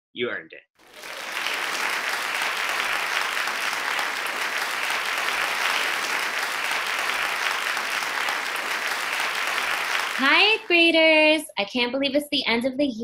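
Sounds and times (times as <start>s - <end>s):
crowd applause: 0.8s - 10.9s.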